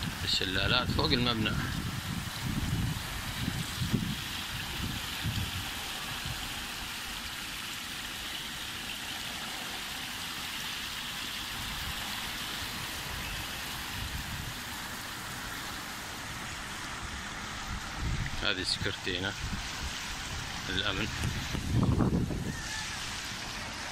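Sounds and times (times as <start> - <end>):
fountain water rushing: 0.0 - 23.9.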